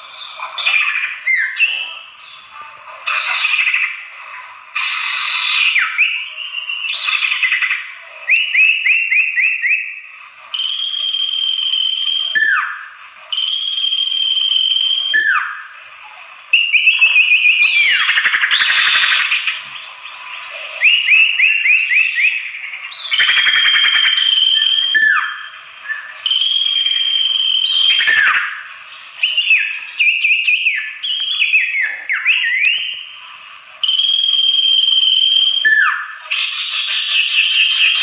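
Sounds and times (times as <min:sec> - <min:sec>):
bird whistling song: 0:00.0 - 0:02.4, 0:03.1 - 0:15.8, 0:16.5 - 0:38.0
bird scratchy chattering: 0:00.4 - 0:04.1, 0:04.8 - 0:06.1, 0:17.2 - 0:19.7.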